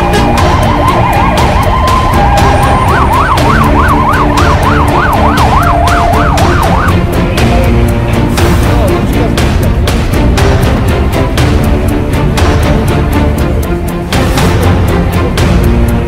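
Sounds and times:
fire engine siren: 0.0s - 7.4s.

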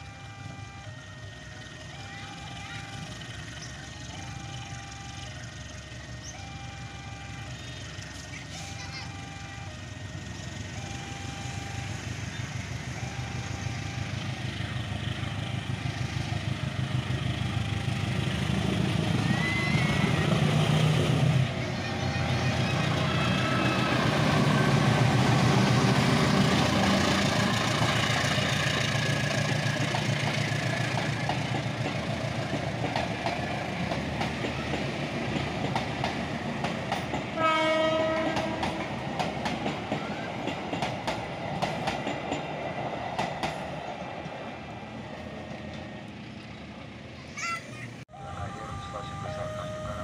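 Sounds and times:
locomotive engine running: 0.0s - 47.3s, 47.9s - 50.0s
train wheels clacking on rails: 12.2s - 45.9s
train horn blast: 37.3s - 39.0s, 48.1s - 50.0s.

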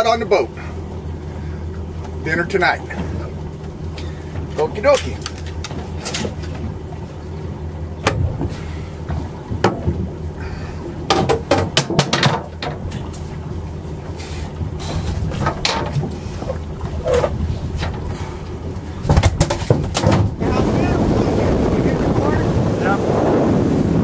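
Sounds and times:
boat motor humming: 0.0s - 24.0s
gear knocking and clattering: 19.0s - 20.3s.

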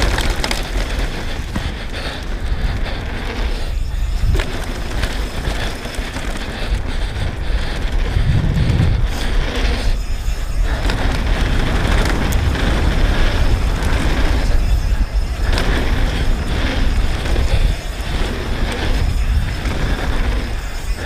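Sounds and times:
mountain bike rattling on dirt: 0.0s - 21.0s
wind rushing over microphone: 0.0s - 21.0s.

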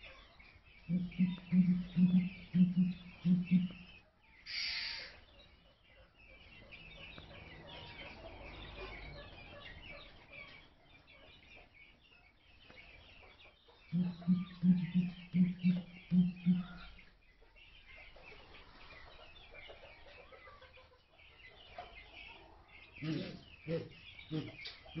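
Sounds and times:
small birds chirping: 0.0s - 25.0s
pigeon booming calls: 0.9s - 3.9s, 14.0s - 16.9s.

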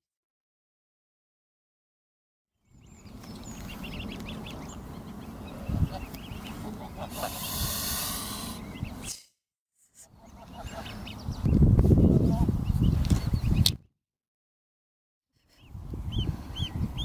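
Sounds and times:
goslings peeping: 2.8s - 9.1s, 10.1s - 13.7s, 15.6s - 17.0s
goose hissing: 5.5s - 9.2s.

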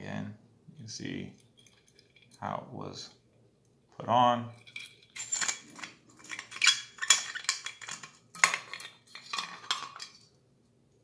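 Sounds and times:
metal canteen clinking and rattling: 1.4s - 2.4s, 4.5s - 10.3s.

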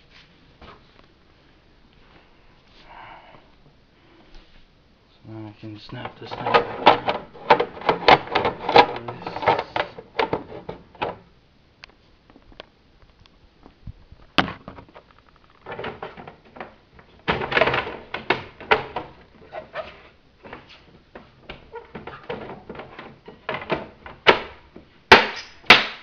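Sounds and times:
plastic clicks and knocks: 6.0s - 13.3s, 14.2s - 19.4s, 20.4s - 25.6s.

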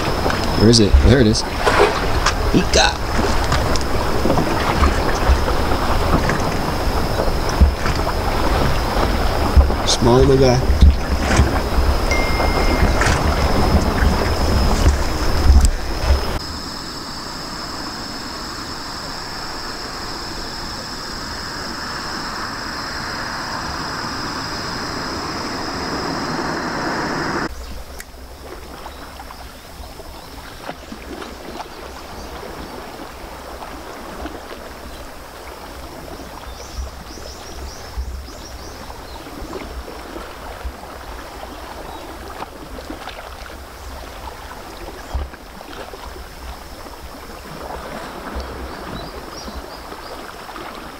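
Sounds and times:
outdoor hiss with high whine: 0.0s - 30.4s
water lapping on rocky shore: 0.0s - 50.9s
wind rumbling on microphone: 0.0s - 50.9s.

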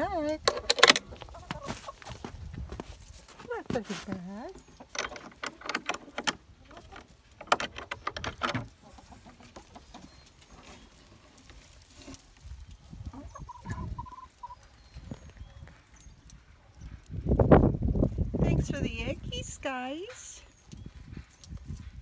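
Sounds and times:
hens clucking: 0.0s - 2.5s, 3.8s - 15.9s.

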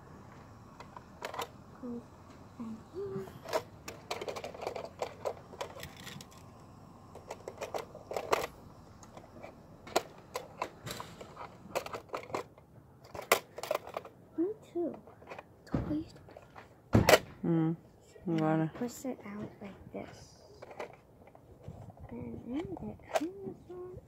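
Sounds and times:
plastic remote clicking and rattling: 0.8s - 1.5s, 3.4s - 14.2s, 20.6s - 21.4s.

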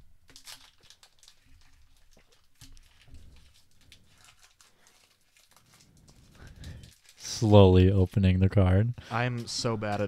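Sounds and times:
foil wrapper crinkling and tearing: 0.3s - 8.4s.

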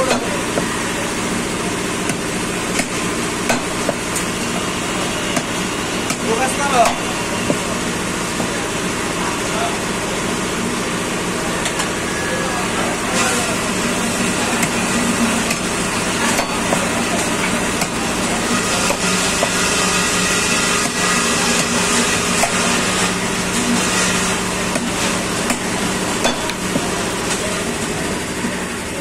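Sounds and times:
cleaver chopping on wooden block: 2.0s - 4.0s, 18.8s - 19.7s, 20.8s - 21.0s, 22.4s - 22.6s.

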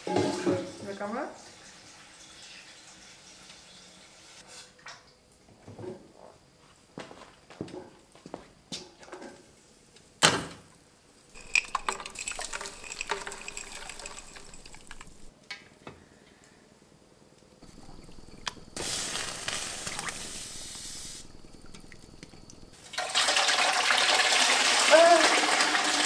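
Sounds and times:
crystals rattling into a pot: 11.3s - 15.3s, 17.6s - 23.4s
water sloshing in a pot: 11.3s - 15.3s, 17.6s - 26.0s.

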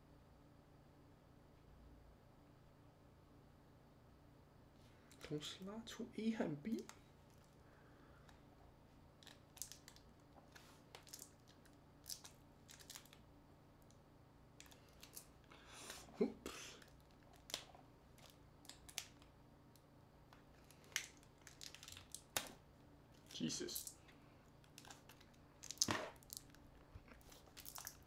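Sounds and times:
plastic tearing rustle: 9.2s - 13.2s, 14.6s - 15.3s, 20.6s - 24.0s, 24.6s - 28.0s.

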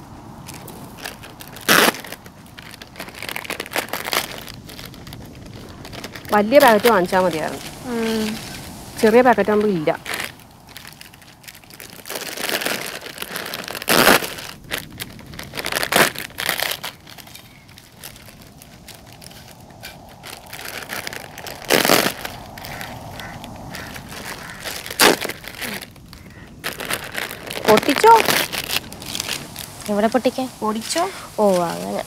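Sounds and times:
foil packets crinkling: 0.4s - 32.0s
chips crackling onto a plate: 10.1s - 29.9s.

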